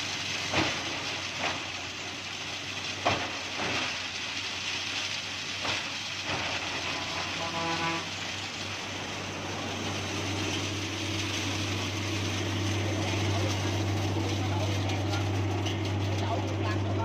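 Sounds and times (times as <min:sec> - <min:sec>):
shredder grinding coconuts: 0:06.4 - 0:17.0
low machine hum: 0:08.7 - 0:17.0.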